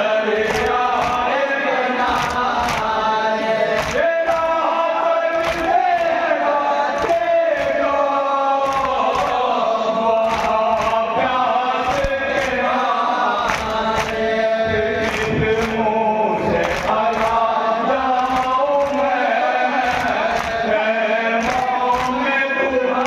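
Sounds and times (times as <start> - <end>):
men chanting into microphone: 0.0 - 23.0.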